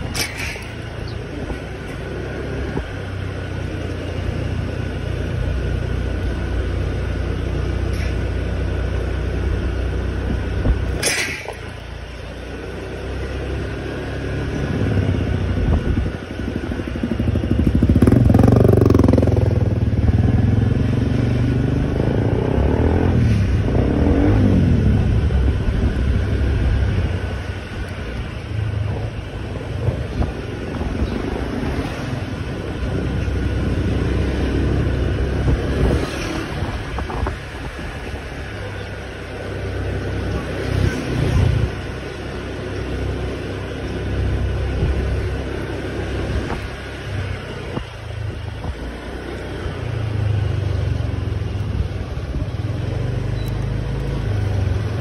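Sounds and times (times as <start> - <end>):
scooter engine running: 14.5 - 20.9
louder engine rising and falling: 17.0 - 26.9.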